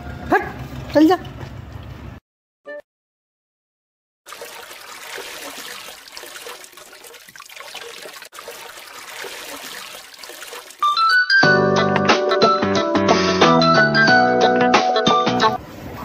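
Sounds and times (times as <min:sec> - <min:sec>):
water splashing from hand pump: 0:04.3 - 0:11.0
music: 0:10.8 - 0:15.6.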